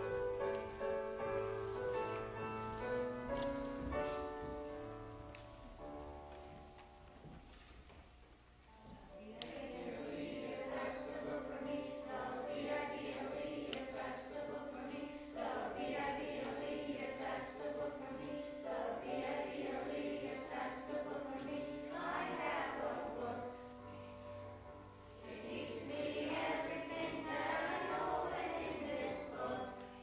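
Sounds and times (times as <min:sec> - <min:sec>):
steady held notes: 0:00.0 - 0:30.0
children's choir singing: 0:09.2 - 0:30.0.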